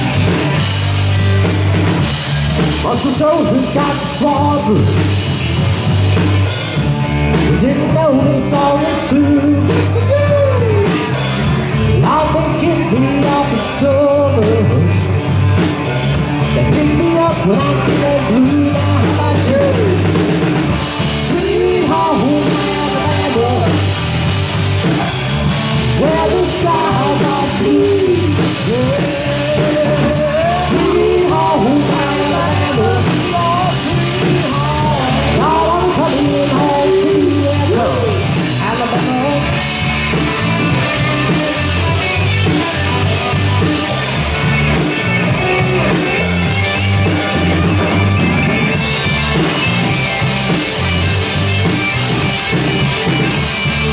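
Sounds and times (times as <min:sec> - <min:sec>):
live rock band playing: 0:00.0 - 0:53.9
sliding melody line: 0:16.6 - 0:53.9.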